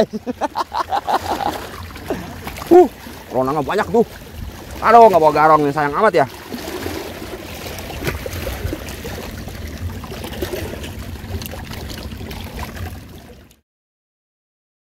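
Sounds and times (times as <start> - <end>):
water lapping among rocks: 0.0 - 13.6
low rumble: 7.1 - 13.5.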